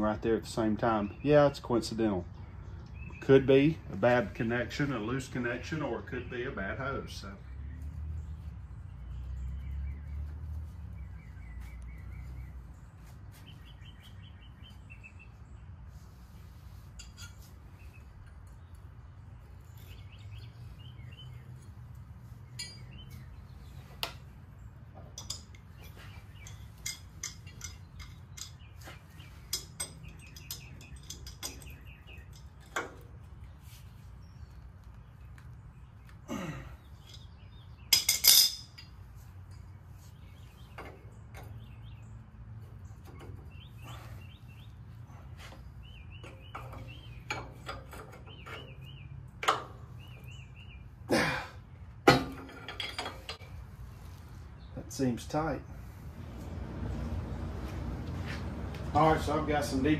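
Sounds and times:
birds chirping: 0:00.0 - 0:59.9
hand tools clinking on metal: 0:16.9 - 0:17.6, 0:22.5 - 0:23.3, 0:25.0 - 0:33.2, 0:36.3 - 0:39.7, 0:45.1 - 0:50.2, 0:52.0 - 0:53.6
metal clatter: 0:25.0 - 0:33.2, 0:37.0 - 0:39.7, 0:46.2 - 0:50.2, 0:52.0 - 0:53.6.

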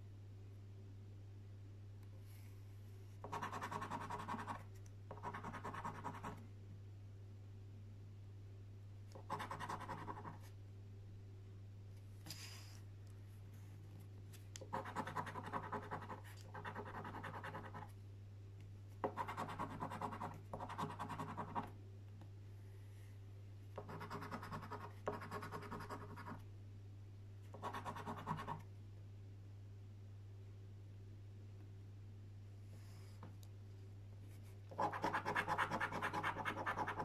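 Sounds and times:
coin scratching a scratchcard: 0:34.8 - 0:37.0.

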